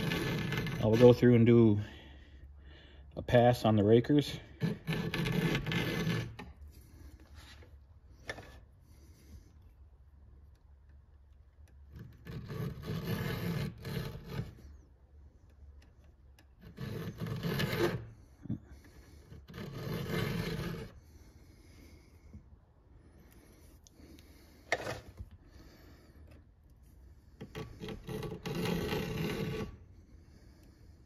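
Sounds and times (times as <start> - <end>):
file rasping on chainsaw chain: 0.0 - 1.4, 4.3 - 6.5, 12.0 - 14.6, 16.6 - 18.1, 18.9 - 21.0, 27.4 - 29.8.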